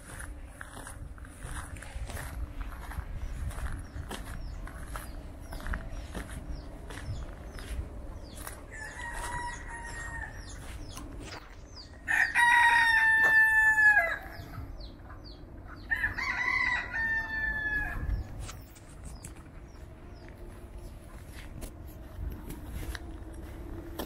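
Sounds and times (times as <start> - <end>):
rooster crowing: 8.7 - 10.6, 12.0 - 14.5, 15.9 - 18.2.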